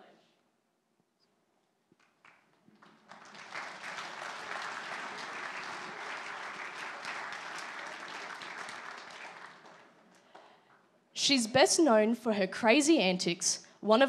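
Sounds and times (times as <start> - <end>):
audience applauding: 2.0 - 10.6.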